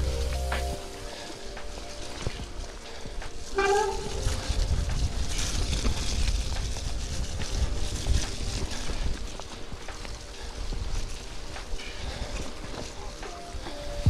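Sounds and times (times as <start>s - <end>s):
bike tyres rolling and rattling: 0.0s - 14.0s
wind buffeting microphone: 0.0s - 14.0s.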